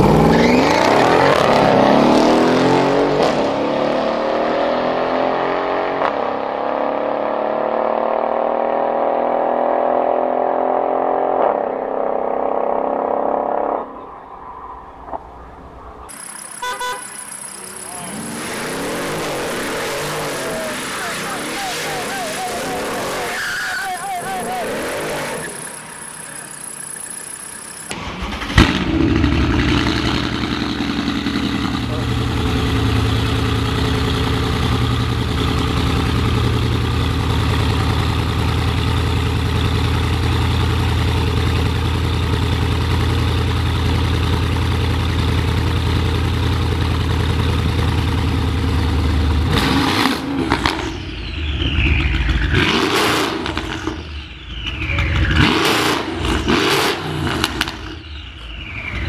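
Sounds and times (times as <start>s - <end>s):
car engine revving: 0.0s - 14.0s, 15.0s - 59.0s
car engine starting and idling: 15.1s - 59.0s.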